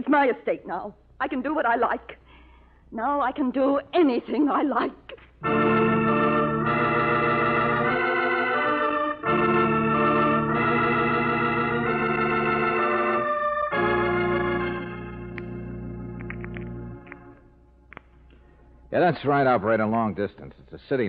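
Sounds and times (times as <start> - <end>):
organ playing held chords: 5.4 - 17.9.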